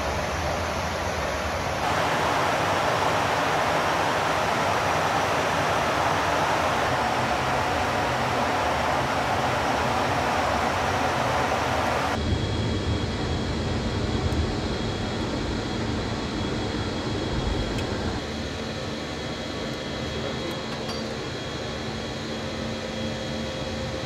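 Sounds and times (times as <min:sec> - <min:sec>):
faint high whine: 0:00.0 - 0:15.7
jet engine and airflow rush: 0:00.0 - 0:24.0.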